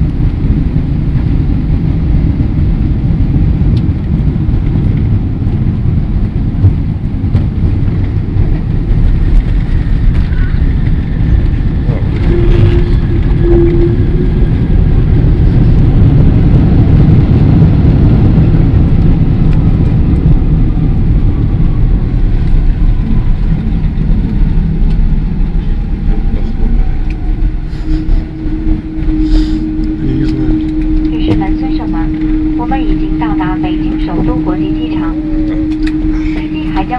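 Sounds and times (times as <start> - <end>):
airliner engines and wheels rumbling: 0.0 - 36.9
faint whine falling in pitch: 8.1 - 36.9.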